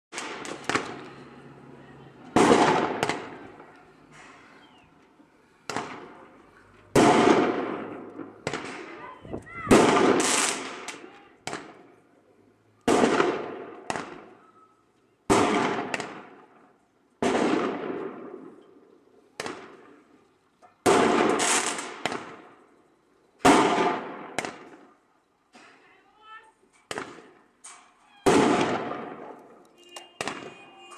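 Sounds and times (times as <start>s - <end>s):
echoing firecracker bangs: 0.1s - 4.8s, 5.5s - 12.0s, 12.8s - 14.5s, 15.3s - 18.6s, 19.4s - 20.2s, 20.8s - 22.6s, 23.4s - 25.7s, 26.9s - 27.4s, 28.2s - 30.9s.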